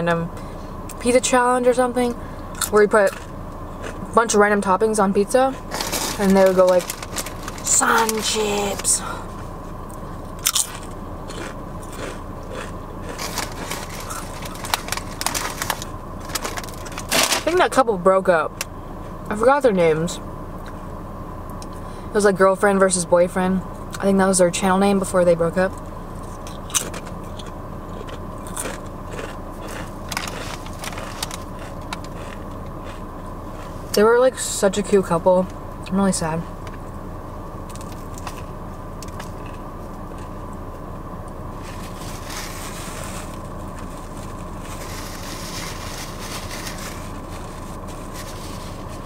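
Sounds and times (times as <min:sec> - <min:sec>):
low hum inside car: 0:00.0 - 0:49.0
chips being bitten and chewed: 0:10.4 - 0:17.4, 0:26.3 - 0:33.7
clicks and rustles of food: 0:10.5 - 0:17.3, 0:26.4 - 0:33.0.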